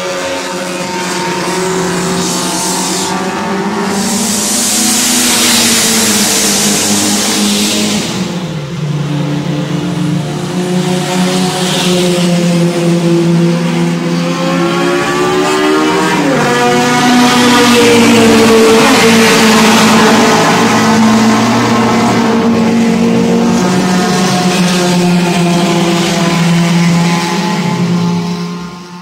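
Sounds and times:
racing car engines passing: 0.0 - 29.0.

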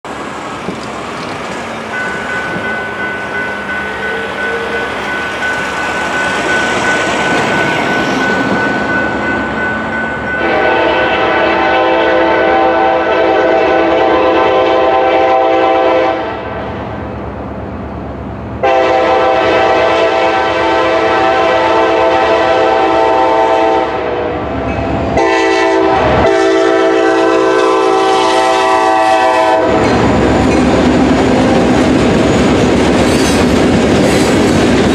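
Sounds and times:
crossing signal bell ringing: 1.6 - 11.6
locomotive air horn blasts: 10.4 - 16.5, 18.6 - 24.5, 25.2 - 29.9.

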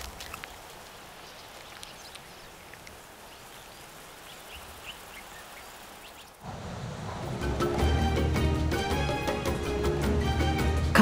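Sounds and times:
small ticks: 0.0 - 6.3.

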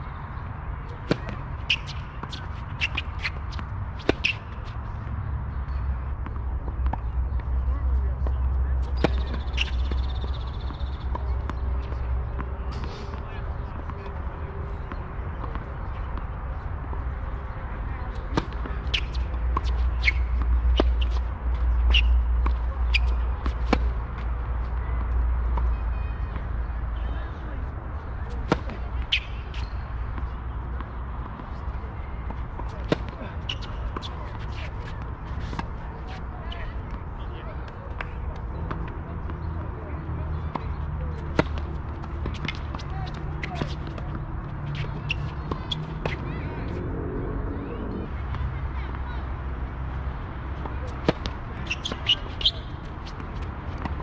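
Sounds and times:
shoes squeaking on court: 0.9 - 7.5, 8.2 - 13.2, 18.0 - 26.4, 27.0 - 36.9, 37.8 - 46.8, 50.5 - 54.0
tennis ball bouncing: 1.0 - 4.7, 8.8 - 11.7, 18.2 - 25.7, 28.3 - 36.2, 40.6 - 46.2, 50.6 - 54.0
low wind rumble on microphone: 46.3 - 48.7.

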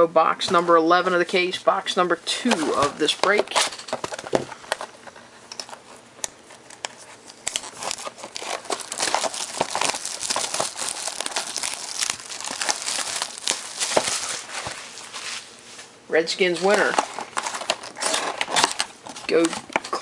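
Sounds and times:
plastic shrink wrap crinkling: 6.8 - 15.9, 16.6 - 20.0.

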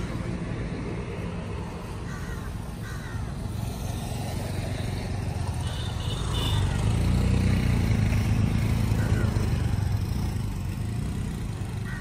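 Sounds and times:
faint crow caws: 1.9 - 3.8, 8.7 - 10.0, 11.7 - 12.0.

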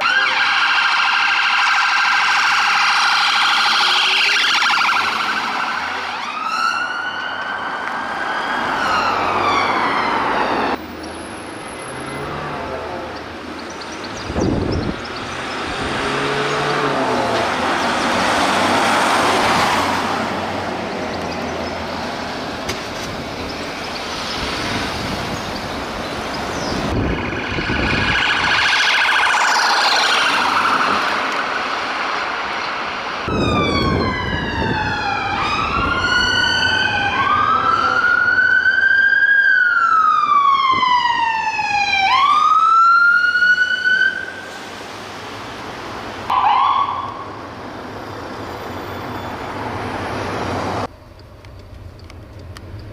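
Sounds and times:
police siren wailing: 0.0 - 11.0, 26.8 - 32.4, 33.2 - 44.5, 46.3 - 47.4
vehicles driving past: 0.0 - 52.9.

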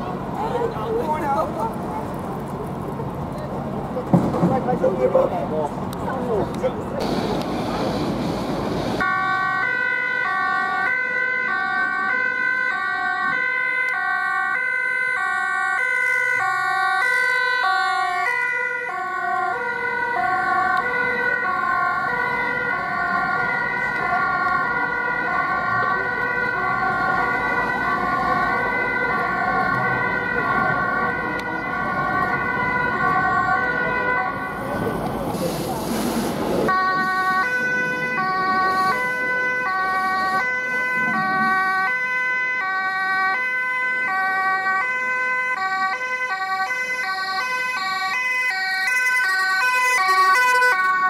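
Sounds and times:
two-tone ambulance siren: 7.0 - 35.0, 36.6 - 51.0
second two-tone siren: 9.0 - 34.7, 36.7 - 51.0.

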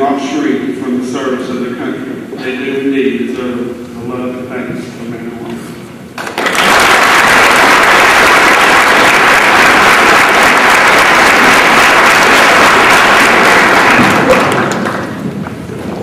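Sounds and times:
audience applauding: 6.2 - 15.4.

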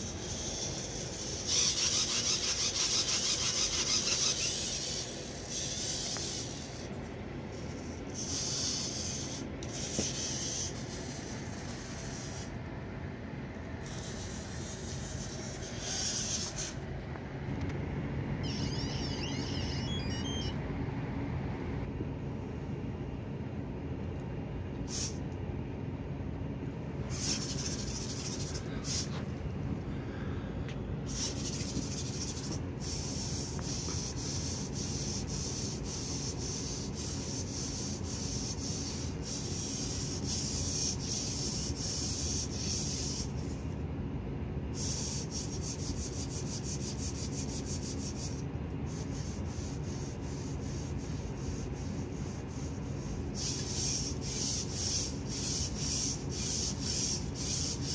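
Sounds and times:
servo motors buzzing: 0.0 - 6.9, 7.5 - 12.5, 13.8 - 16.8, 18.4 - 20.6, 27.1 - 29.3
high scratchy ticking hiss: 0.0 - 12.8, 13.5 - 20.6, 24.8 - 25.3, 27.0 - 43.8, 44.7 - 57.9
steady low hum: 0.0 - 57.9.

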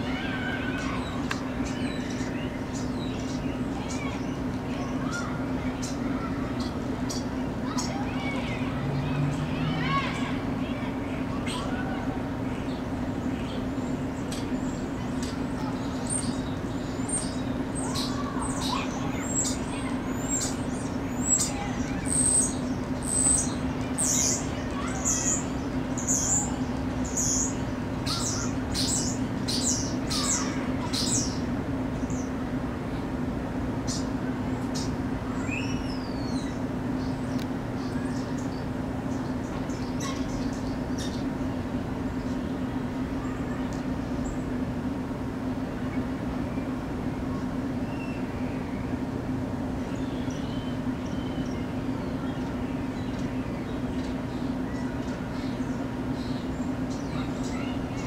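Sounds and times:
steady low hum: 0.0 - 58.0
songbird chirping: 0.4 - 32.4, 49.8 - 58.0.

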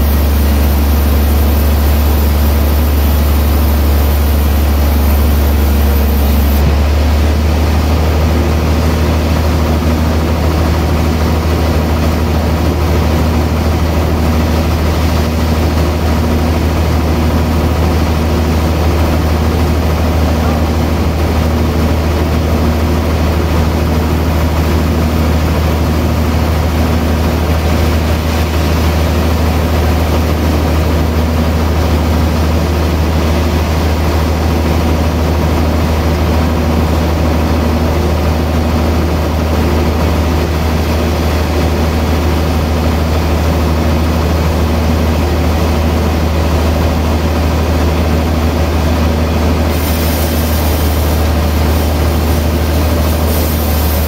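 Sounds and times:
band saw cutting log: 0.0 - 6.8, 49.7 - 54.0.

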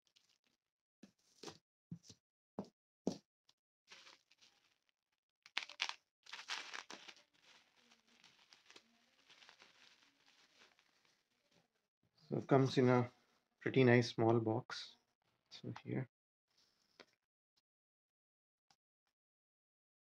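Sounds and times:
bubble wrap crinkling and tearing: 3.9 - 4.9, 5.5 - 11.7.

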